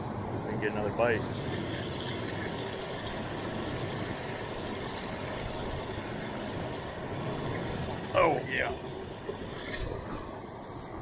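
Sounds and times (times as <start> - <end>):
water rushing over weir: 0.0 - 11.0.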